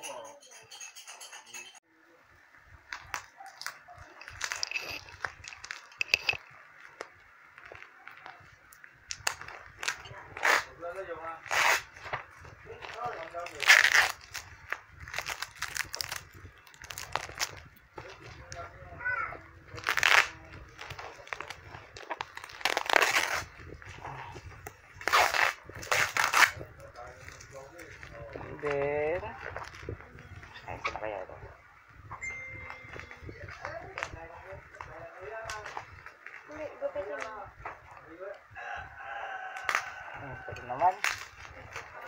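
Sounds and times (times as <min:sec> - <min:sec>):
plastic wrapping crinkling: 0:02.9 - 0:18.7, 0:19.6 - 0:31.0, 0:40.9 - 0:42.0.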